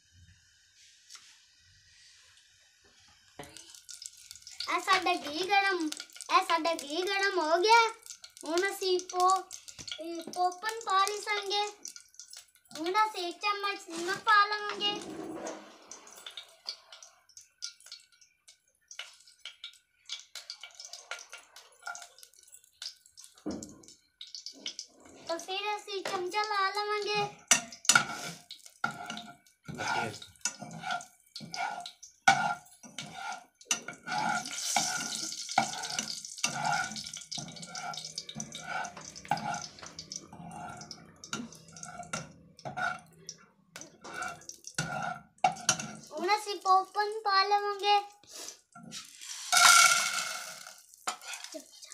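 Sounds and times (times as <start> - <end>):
metal spatula scraping pot: 12.8 - 18.0, 24.3 - 46.1, 48.8 - 51.7.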